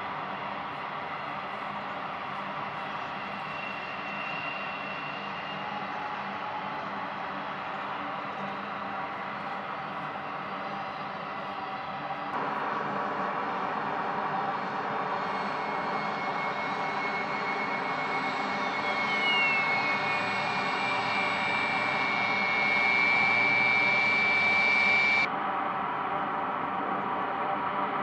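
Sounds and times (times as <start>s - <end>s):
jet engine noise: 0.0s - 28.0s
high engine whine: 11.9s - 28.0s.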